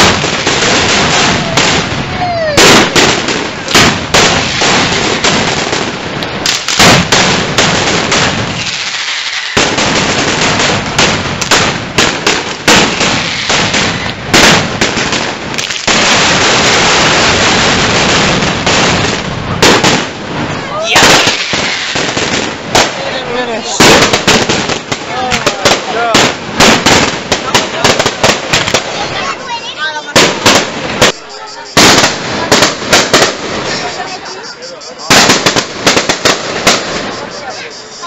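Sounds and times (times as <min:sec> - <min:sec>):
firecrackers banging: 0:00.0 - 0:38.0.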